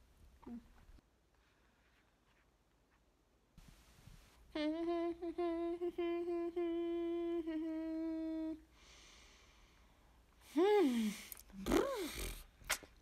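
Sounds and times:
woman humming: 0.4s - 0.8s, 4.5s - 8.7s, 10.4s - 12.4s.

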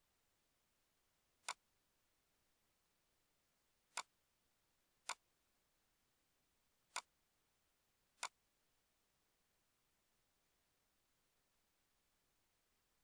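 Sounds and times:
computer mouse clicks: 1.4s - 1.6s, 3.9s - 4.1s, 5.0s - 5.2s, 6.9s - 7.1s.

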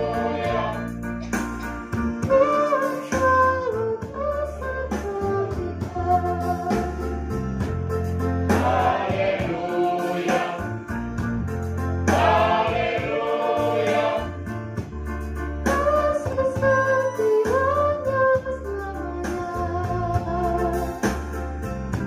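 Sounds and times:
mixed choir singing: 0.0s - 1.0s, 8.5s - 10.9s, 12.1s - 14.5s
electronic keyboard: 0.0s - 22.0s.

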